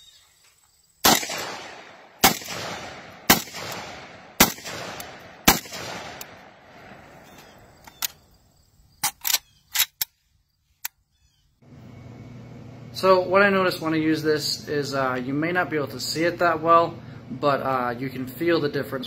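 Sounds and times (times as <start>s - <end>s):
shotgun shots echoing: 1.0s - 7.2s.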